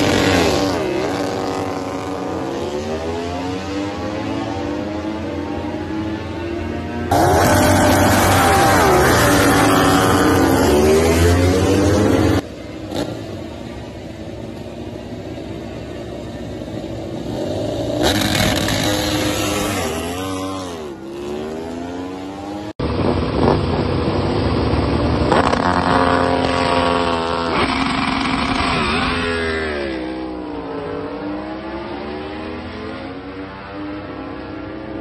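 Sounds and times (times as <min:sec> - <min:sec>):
racing motorcycle engine revving: 0:00.0 - 0:13.6, 0:17.0 - 0:35.0
motorcycle launching and upshifting: 0:25.2 - 0:30.0.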